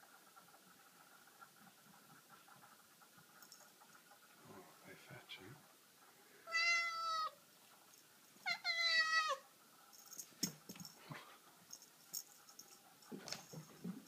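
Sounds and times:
cat meowing: 0:06.4 - 0:07.4, 0:08.4 - 0:09.4
paws tapping on tile floor: 0:09.9 - 0:14.0.

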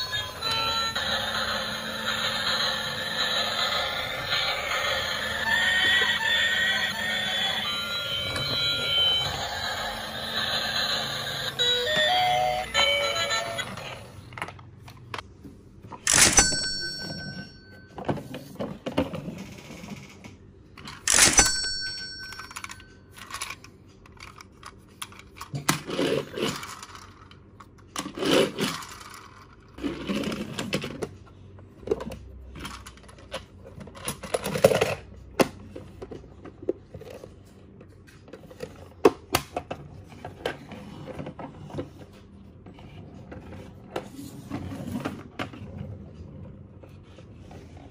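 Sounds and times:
toy train rolling: 0:00.0 - 0:14.5, 0:20.9 - 0:27.4, 0:28.0 - 0:31.1.

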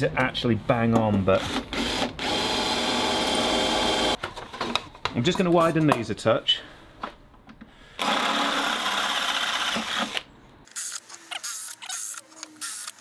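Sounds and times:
cordless drill boring steel: 0:08.0 - 0:10.2.

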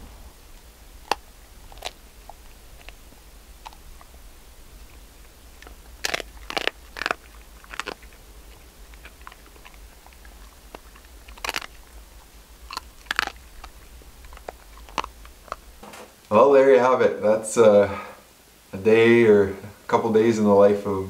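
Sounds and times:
dog chewing softly: 0:00.0 - 0:15.8
dog crunching bones: 0:00.0 - 0:15.8.

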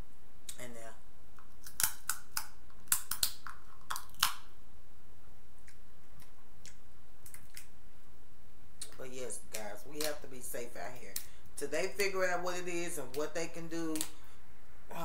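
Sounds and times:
shell cracking snaps: 0:01.4 - 0:04.5, 0:05.6 - 0:07.7.

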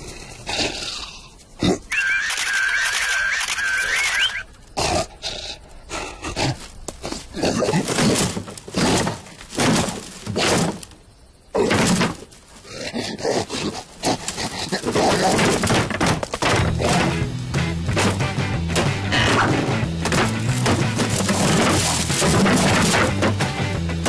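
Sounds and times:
bamboo cage thuds and bangs: 0:07.7 - 0:11.0, 0:11.6 - 0:12.4, 0:14.8 - 0:24.0.

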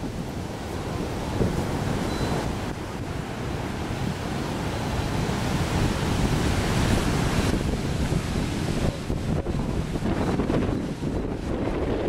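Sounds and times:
surf breaking and rushing ashore: 0:00.0 - 0:12.0
wind buffeting microphone: 0:00.0 - 0:12.0.

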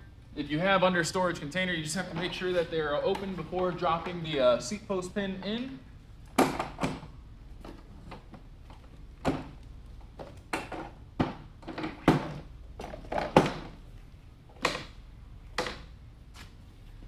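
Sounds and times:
wheelchair seat knocks and clunks: 0:09.2 - 0:13.8.

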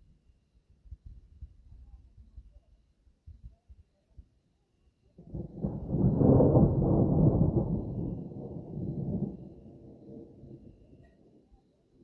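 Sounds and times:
thunder rumbling: 0:05.2 - 0:11.4.

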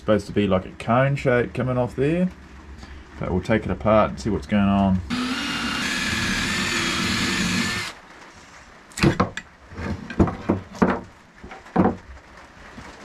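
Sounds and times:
cordless drill running: 0:05.1 - 0:08.0.

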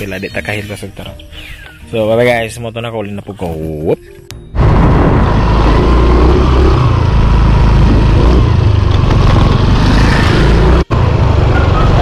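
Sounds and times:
wind and road noise: 0:04.2 - 0:12.0
scooter engine running: 0:04.6 - 0:12.0.

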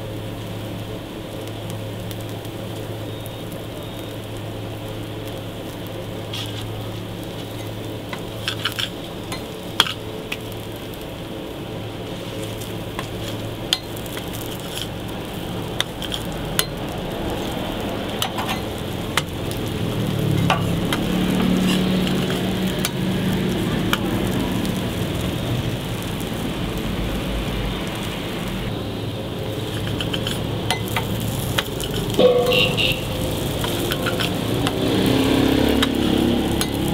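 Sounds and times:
burger patties sizzling on griddle: 0:00.0 - 0:36.9
metal spatula scraping griddle: 0:06.3 - 0:06.7, 0:07.3 - 0:10.1, 0:12.0 - 0:23.1, 0:29.5 - 0:36.9
deep rumble: 0:12.0 - 0:29.7.

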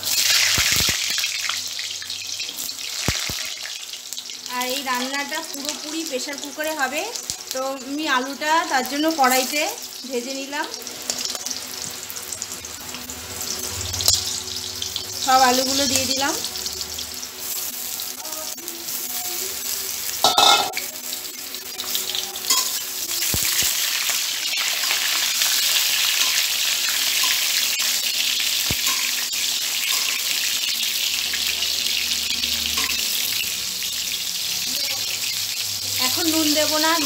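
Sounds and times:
potatoes sizzling in oil: 0:00.0 - 0:37.0
metal spatula clinking on pan: 0:20.2 - 0:20.8, 0:22.5 - 0:22.8, 0:28.8 - 0:29.2, 0:29.8 - 0:30.3.

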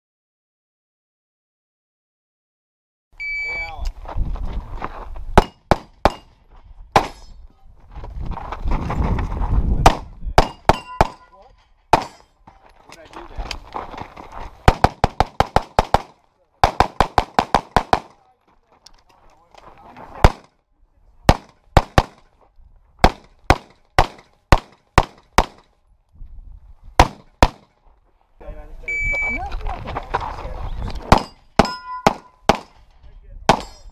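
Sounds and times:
footsteps on gravel: 0:03.9 - 0:05.8, 0:07.7 - 0:09.8, 0:12.5 - 0:15.2, 0:18.4 - 0:20.2, 0:29.3 - 0:31.0
pistol shots: 0:05.4 - 0:06.3, 0:09.9 - 0:11.3, 0:11.9 - 0:12.2, 0:14.7 - 0:18.2, 0:20.2 - 0:20.5, 0:21.3 - 0:22.3, 0:23.0 - 0:25.7, 0:27.0 - 0:27.7, 0:31.1 - 0:32.8, 0:33.5 - 0:33.9.

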